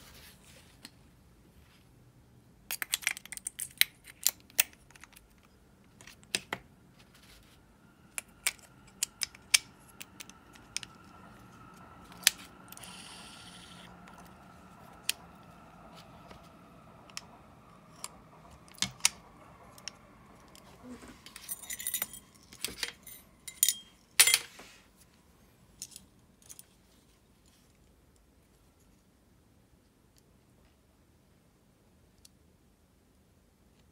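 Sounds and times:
reel spool whirring: 12.2s - 18.3s.

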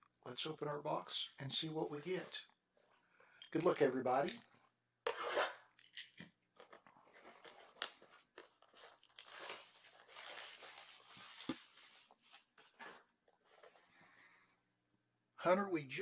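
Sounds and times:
shrink wrap tearing and crinkling: 7.2s - 12.6s.

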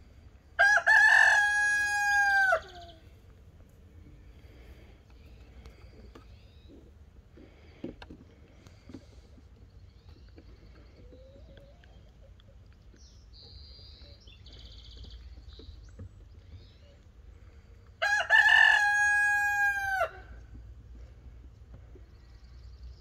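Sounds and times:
rooster crowing: 0.6s - 3.0s, 18.0s - 20.4s.

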